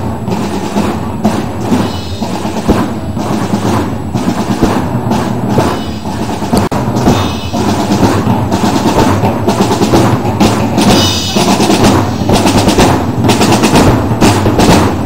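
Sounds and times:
drum band marching beat: 0:00.0 - 0:15.0
snare drum rolls: 0:00.0 - 0:15.0.

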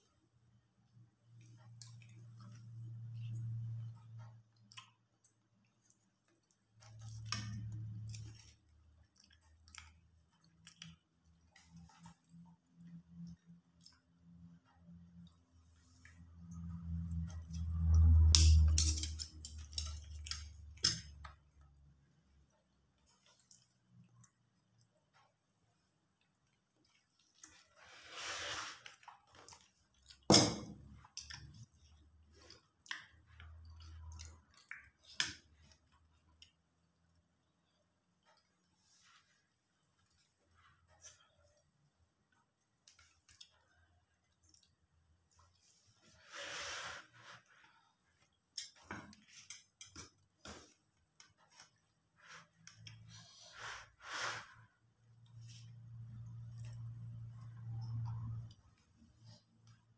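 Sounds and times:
low steady hum: 0:00.0 - 0:54.1, 0:54.7 - 0:59.9.

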